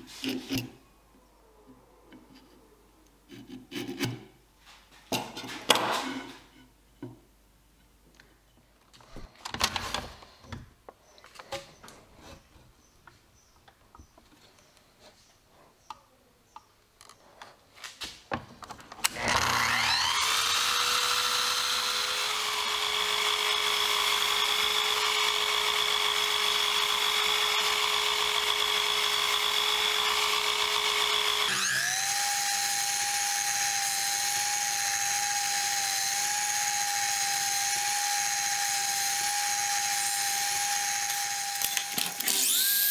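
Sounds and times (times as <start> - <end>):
miter saw whining: 19.0 - 42.9.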